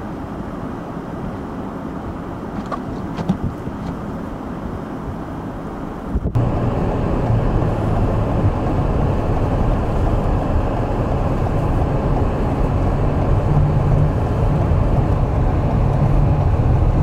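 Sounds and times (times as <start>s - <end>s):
vehicle driving rumble: 0.0s - 17.0s
wind noise: 2.6s - 4.1s, 5.9s - 17.0s.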